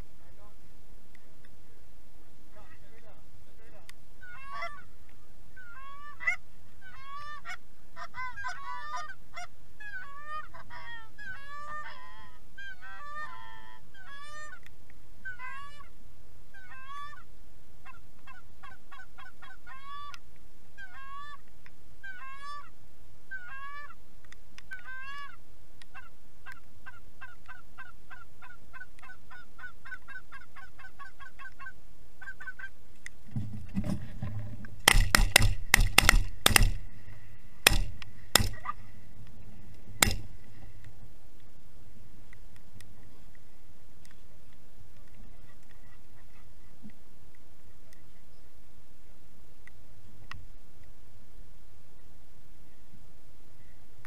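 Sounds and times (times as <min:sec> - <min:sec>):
goose honking and clucking: 0:04.2 - 0:04.9, 0:05.6 - 0:14.6, 0:15.2 - 0:15.9, 0:16.5 - 0:17.2, 0:17.8 - 0:20.2, 0:20.8 - 0:21.4, 0:22.0 - 0:22.7, 0:23.3 - 0:24.0, 0:24.7 - 0:32.8, 0:37.7 - 0:38.9.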